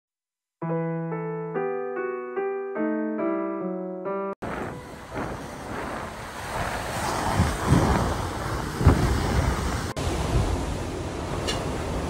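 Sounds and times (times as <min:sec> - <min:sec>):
storm wind gusts: 0:04.4 - 0:12.0
wind buffeting microphone: 0:04.4 - 0:12.0.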